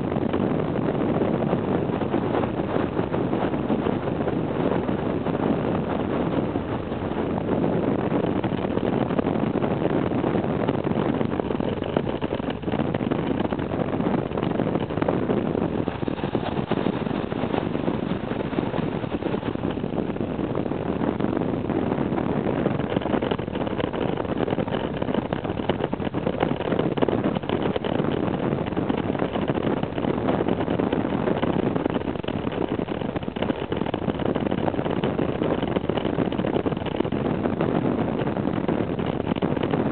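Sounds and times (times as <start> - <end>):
wind on microphone: 0.0 - 39.9
motorcycle engine running: 10.6 - 21.4.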